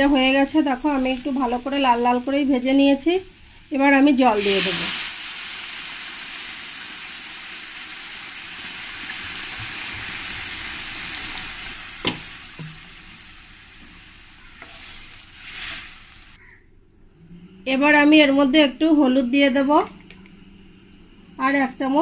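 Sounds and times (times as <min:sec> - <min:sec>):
water sizzling in hot pan: 0:00.0 - 0:16.4.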